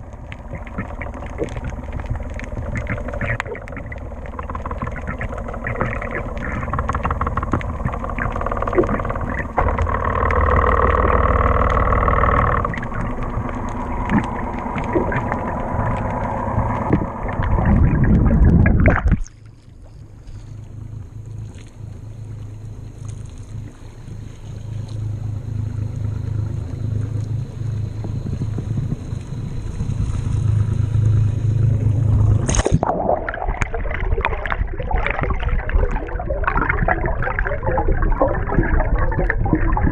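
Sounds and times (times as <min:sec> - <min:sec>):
low steady hum: 0:00.0 - 0:39.9
muffled underwater rushing: 0:00.0 - 0:39.9
underwater knocks: 0:00.4 - 0:19.3.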